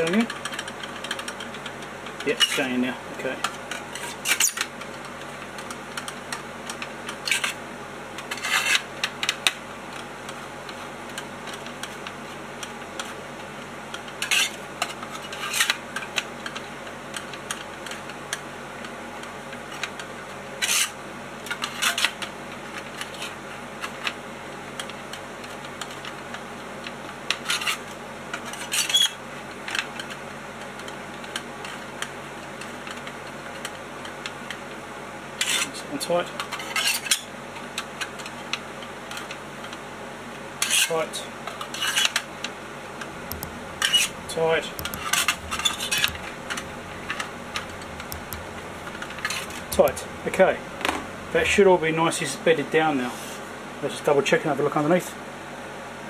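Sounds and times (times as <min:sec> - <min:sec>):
faint steady hum: 0:42.4 - 0:54.0
screwdriver metallic clicks and scrapes: 0:43.2 - 0:50.6.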